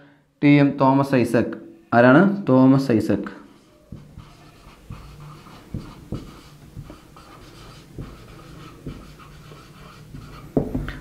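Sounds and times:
marker writing on whiteboard: 3.5s - 11.0s.

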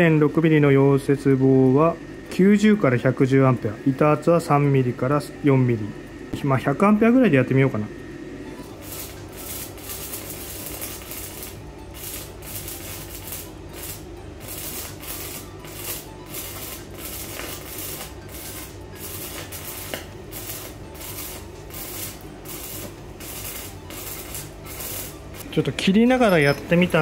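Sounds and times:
welding arc crackling: 8.5s - 27.0s.

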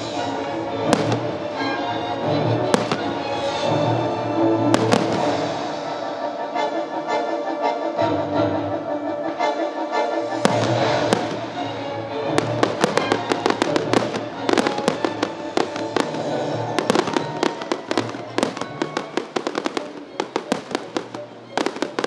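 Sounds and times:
firework bangs and crackles: 0.0s - 6.0s, 10.4s - 22.0s
music: 0.0s - 22.0s.

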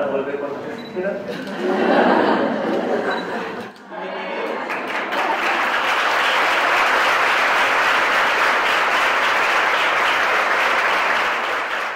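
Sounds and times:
audience applauding: 3.9s - 11.9s.

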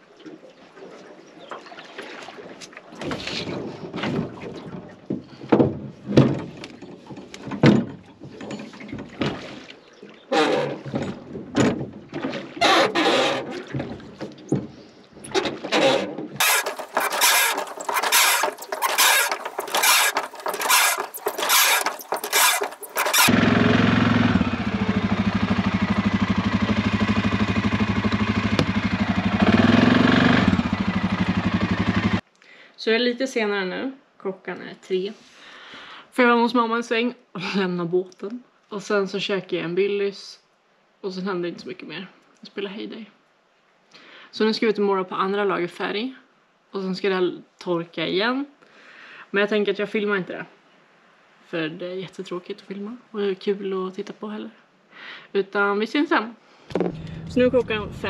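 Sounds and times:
knocks and scrapes: 10.3s - 23.4s, 56.7s - 58.0s
boat motor cranking and running: 12.6s - 13.7s, 15.3s - 32.2s, 56.7s - 58.0s.

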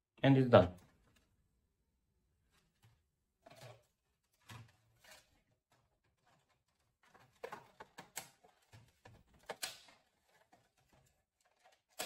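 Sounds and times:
plastic parts clicking and rustling: 2.4s - 12.0s.

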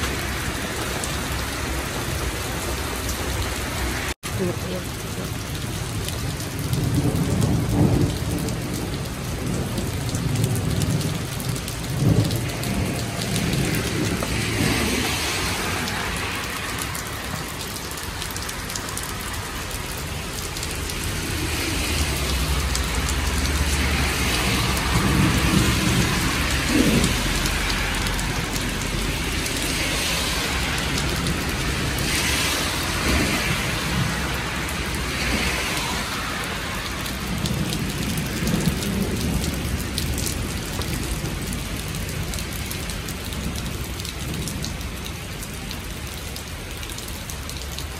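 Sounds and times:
heavy rain on pavement: 0.0s - 47.9s
thunder rumbling: 5.8s - 19.0s, 19.8s - 42.4s.

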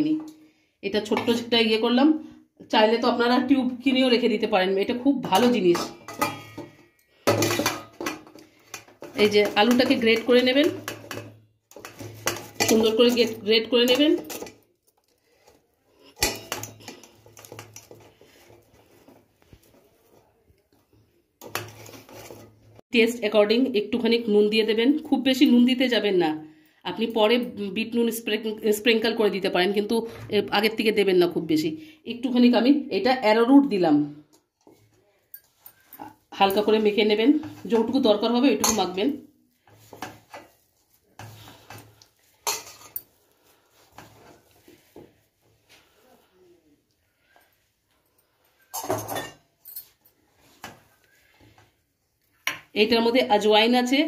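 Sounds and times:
metal bowl knocking and scraping: 1.0s - 1.7s, 5.1s - 14.6s, 16.0s - 19.2s, 21.4s - 22.7s, 34.7s - 43.2s.

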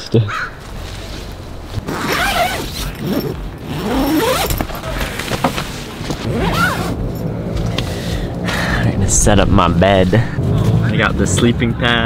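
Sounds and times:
tent zipper being pulled: 1.7s - 4.8s, 6.2s - 7.0s.

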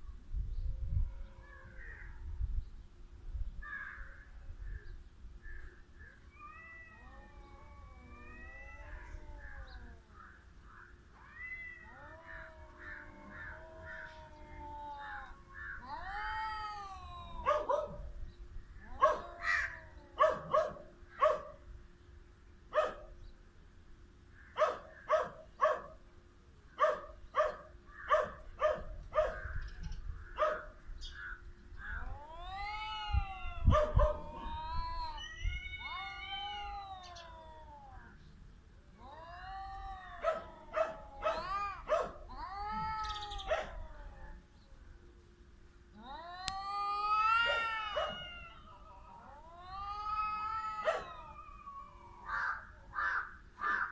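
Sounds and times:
cats caterwauling: 0.9s - 2.2s, 6.2s - 21.6s, 26.8s - 44.6s, 45.8s - 53.9s.

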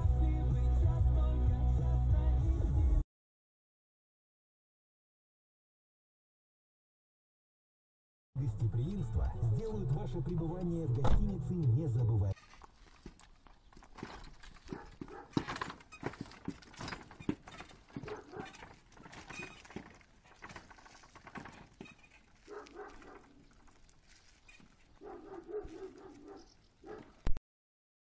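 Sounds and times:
horse hooves clip-clopping on pavement: 12.6s - 27.1s
cart knocking: 13.8s - 23.8s.

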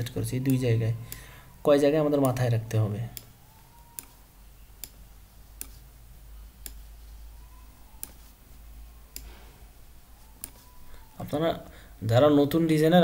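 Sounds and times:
computer mouse clicking: 0.0s - 1.3s, 2.2s - 2.4s, 3.1s - 4.2s, 4.8s - 8.4s, 9.1s - 9.4s, 10.3s - 11.1s
faint low hum: 0.0s - 13.0s.

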